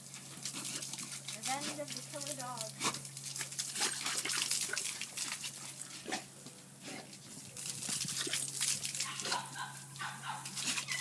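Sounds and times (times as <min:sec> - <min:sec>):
water splashing on concrete: 0:00.0 - 0:05.7
dog snapping at water stream: 0:00.3 - 0:06.3, 0:06.9 - 0:11.0.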